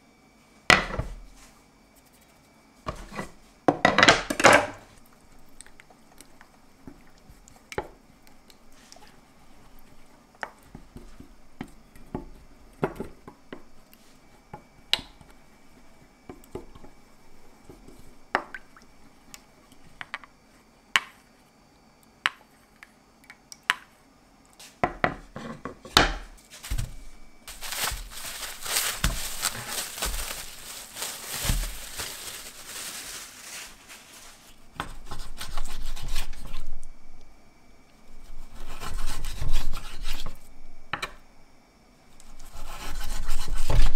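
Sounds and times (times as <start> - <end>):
cutting board thump on table: 0.7 - 1.2
rustling noise: 26.4 - 34.6.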